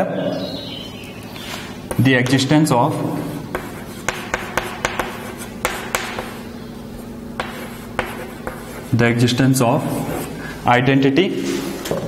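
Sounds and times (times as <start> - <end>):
chalk tapping and scratching: 3.5 - 6.5, 7.4 - 9.0.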